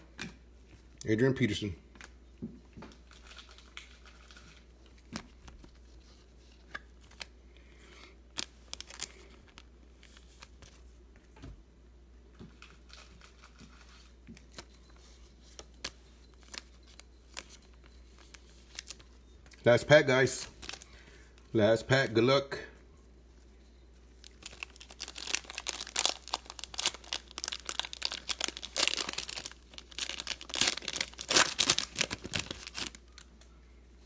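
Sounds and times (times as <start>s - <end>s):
trading cards handled: 12.6s - 19.6s, 24.4s - 33.3s.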